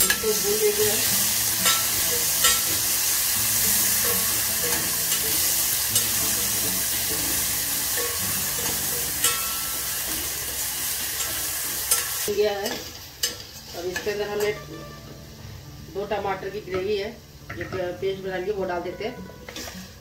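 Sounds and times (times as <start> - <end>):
paste sizzling in hot oil: 0.0 - 14.7.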